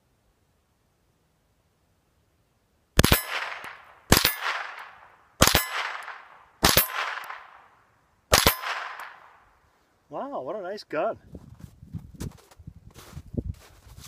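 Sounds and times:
steel target ringing clang: 3.0s - 4.9s, 5.5s - 7.3s
rifle shots cracking: 3.0s - 7.7s, 8.3s - 9.4s.

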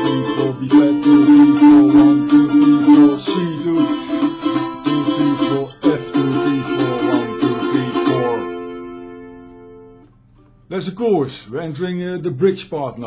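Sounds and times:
mandolin strummed with a pick: 0.0s - 10.1s.

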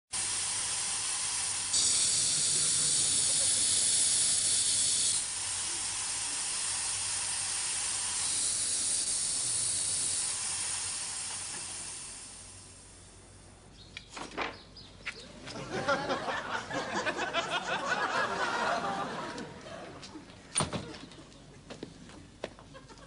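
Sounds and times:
air hissing from tyre: 0.1s - 13.5s.

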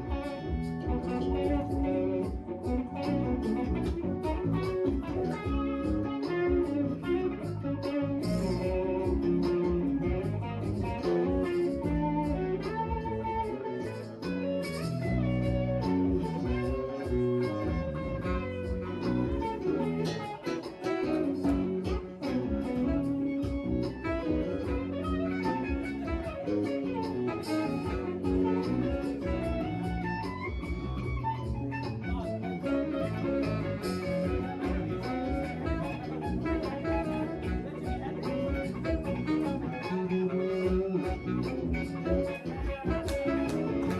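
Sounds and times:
bass and keyboards: 0.0s - 43.9s
electric guitar: 0.0s - 43.9s
steady drum beat: 0.0s - 43.9s.

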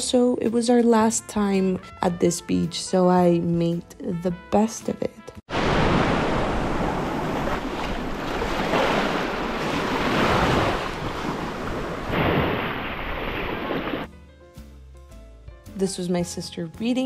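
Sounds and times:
sea waves breaking on shore: 5.5s - 14.1s.

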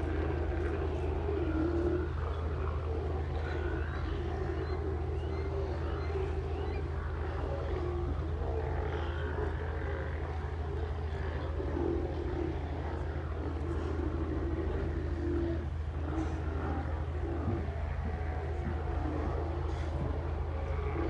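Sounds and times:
boat motor humming: 0.0s - 21.0s
sea lions calling: 0.0s - 21.0s.

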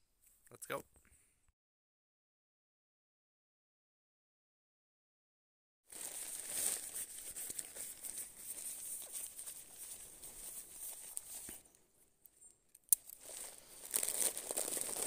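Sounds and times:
fabric sack crinkling and rustling: 5.9s - 11.7s, 13.0s - 15.0s.

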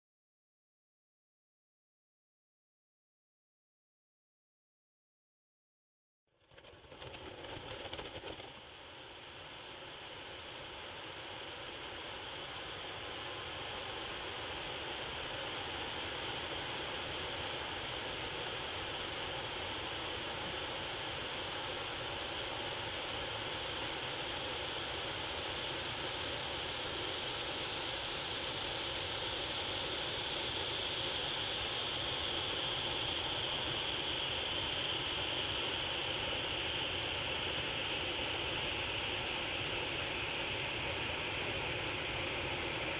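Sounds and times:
fireworks lances fizzing hiss: 7.8s - 42.9s.

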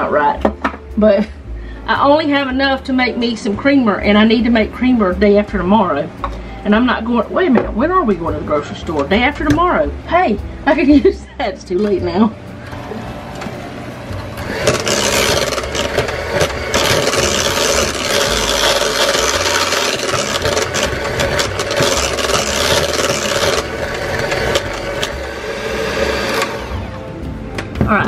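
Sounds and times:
electric hand mixer running: 12.6s - 27.2s
beaters scraping metal pot: 14.2s - 26.7s.

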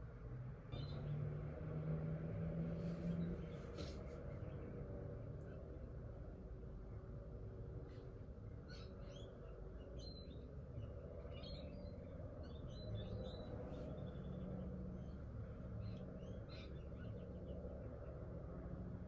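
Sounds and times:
birds chirping: 8.4s - 18.2s.

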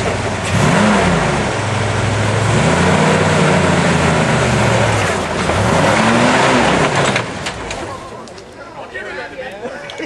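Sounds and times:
engine revving under load: 0.0s - 7.6s.

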